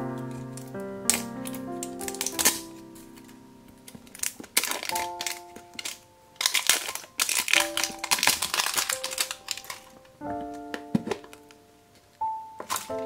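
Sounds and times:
light background music: 0:00.0 - 0:13.0
plastic wrapping crinkling: 0:00.0 - 0:13.0.

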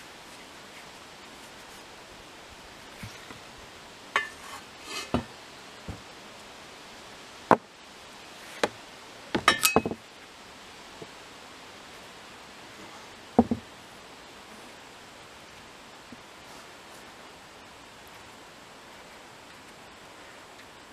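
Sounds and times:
metal scraping on wood: 0:04.2 - 0:05.3
shovel knocking and clinking: 0:09.5 - 0:10.0.

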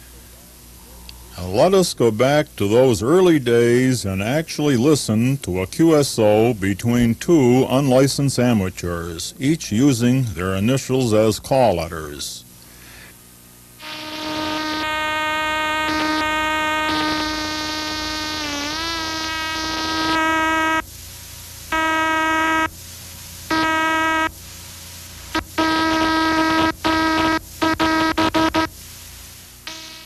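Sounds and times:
buzzy morse code tone: 0:13.8 - 0:20.8, 0:21.7 - 0:22.7, 0:23.5 - 0:24.3, 0:25.3 - 0:28.8, 0:29.6 - 0:30.0.

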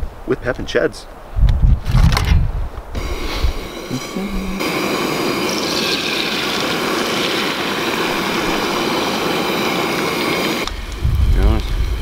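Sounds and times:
eggs sizzling in a hot pan: 0:03.0 - 0:12.0
butter sizzling in a frying pan: 0:04.8 - 0:12.0.

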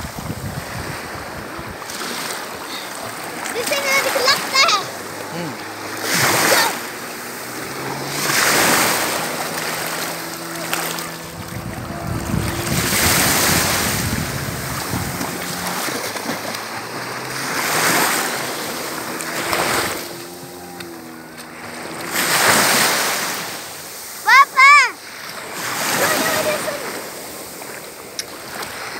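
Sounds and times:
wind buffeting microphone: 0:00.0 - 0:23.0
small waves washing onto sand: 0:00.0 - 0:28.9.

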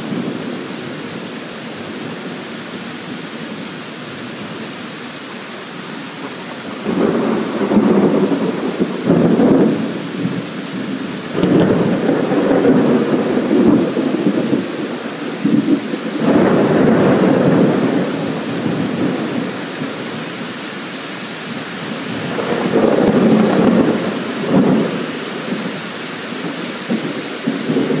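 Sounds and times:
rain hissing: 0:00.0 - 0:28.0
thunder rumbling: 0:06.2 - 0:20.2, 0:21.8 - 0:28.0.

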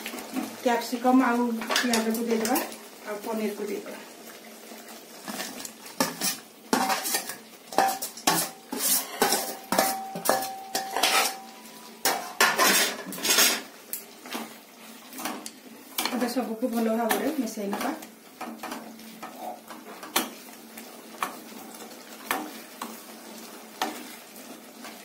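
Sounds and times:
steel dishes clattering on a pan rim: 0:05.3 - 0:13.7.

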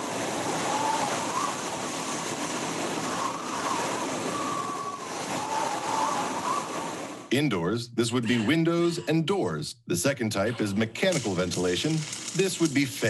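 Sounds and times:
strong wind blowing: 0:00.0 - 0:07.3.

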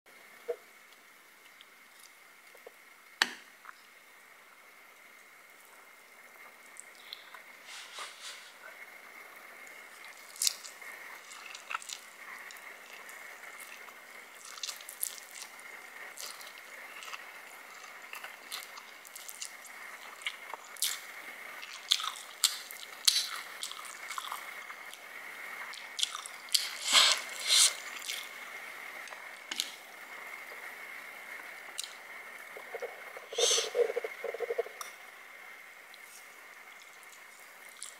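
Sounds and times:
wet squishy chewing: 0:10.0 - 0:25.0
faint high whine: 0:23.8 - 0:37.9
slurping noodles: 0:26.1 - 0:28.3.

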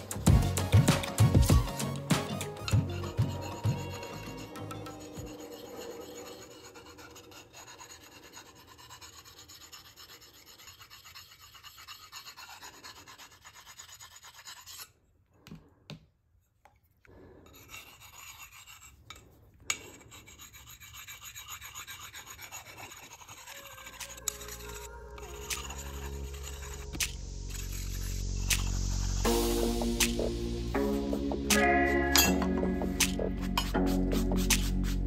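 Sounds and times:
whetstone scraping on steel: 0:02.6 - 0:15.0, 0:17.4 - 0:29.1, 0:31.6 - 0:34.8.

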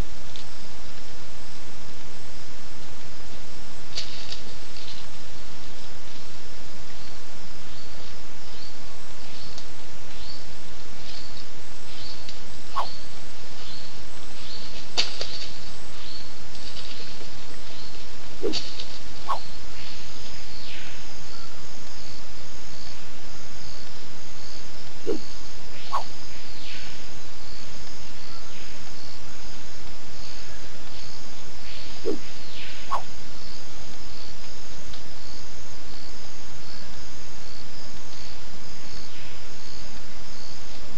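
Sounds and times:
rhythmic insect chirping: 0:12.8 - 0:13.0, 0:24.5 - 0:26.7, 0:31.6 - 0:34.3.

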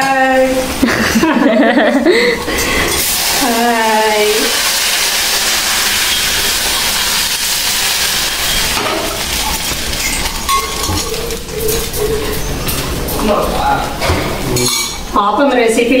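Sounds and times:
batter sizzling in a pan: 0:03.0 - 0:10.7.

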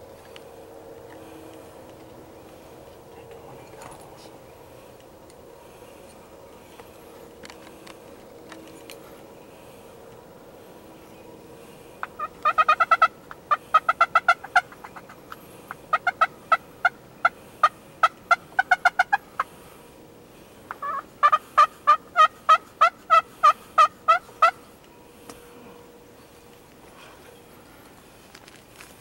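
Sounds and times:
wild turkey yelping: 0:12.0 - 0:19.6, 0:20.7 - 0:24.7.

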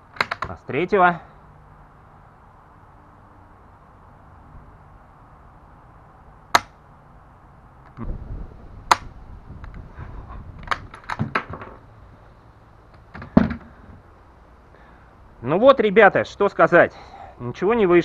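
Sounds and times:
metallic bolt clicks: 0:00.0 - 0:00.6, 0:10.6 - 0:11.5
rifle action dry snaps: 0:08.9 - 0:09.8.

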